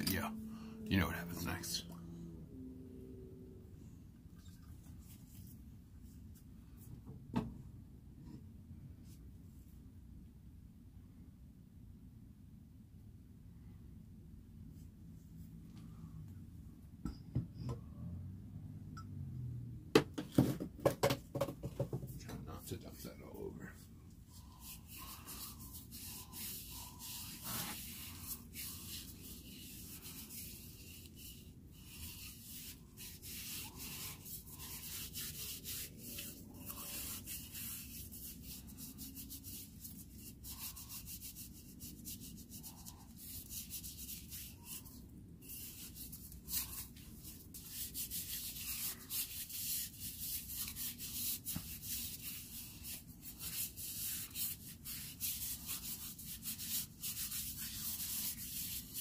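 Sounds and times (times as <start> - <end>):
hands rubbing wood: 20.8 - 59.0.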